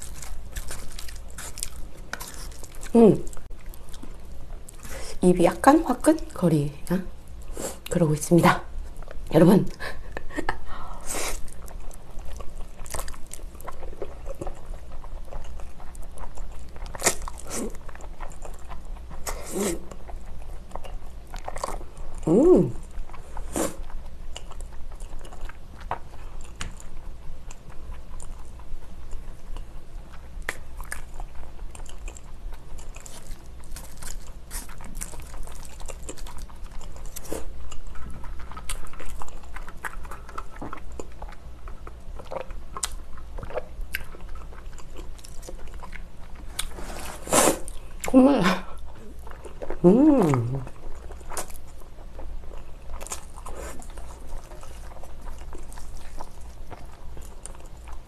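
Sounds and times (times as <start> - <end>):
wet chewing: 0.0 - 6.4, 11.1 - 58.0
pitched mouth sound: 49.8 - 50.7.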